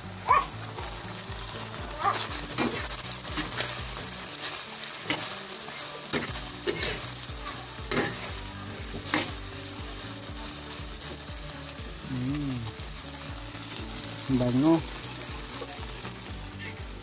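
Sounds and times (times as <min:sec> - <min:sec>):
food sizzling in a wok: 0:00.0 - 0:17.0
spatula scraping a pan: 0:02.1 - 0:09.5.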